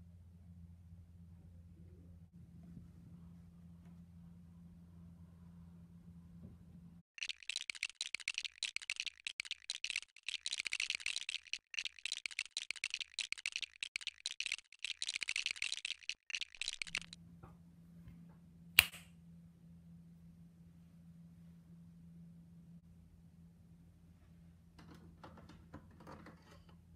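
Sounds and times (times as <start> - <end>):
plastic bricks clicking together: 7.2 - 17.2
single sharp click: 18.8 - 19.1.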